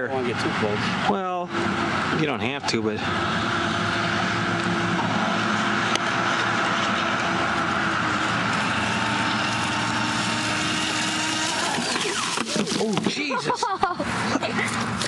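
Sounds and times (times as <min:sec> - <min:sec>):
electric motor high whine: 0:00.2 - 0:13.1
water and spray hissing: 0:08.6 - 0:13.5.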